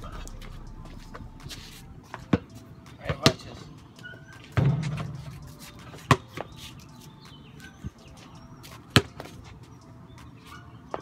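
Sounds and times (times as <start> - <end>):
basketball bangs: 4.5 - 5.4.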